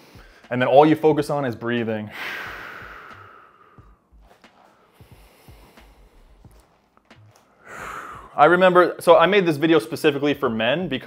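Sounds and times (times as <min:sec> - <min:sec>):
man breathing out: 0:02.1 - 0:04.1, 0:07.5 - 0:08.4.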